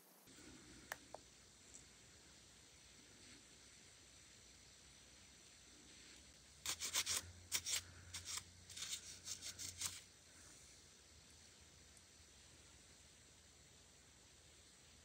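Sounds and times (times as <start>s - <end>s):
wipe rubbing on nail: 5.8s - 10.1s.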